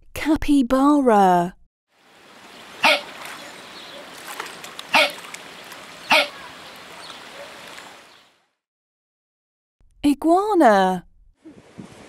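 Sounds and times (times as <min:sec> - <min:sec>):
steady outdoor hiss: 0:02.0 - 0:08.3
capybara hiccup-like calls: 0:02.8 - 0:03.2, 0:04.9 - 0:05.3, 0:06.0 - 0:07.0.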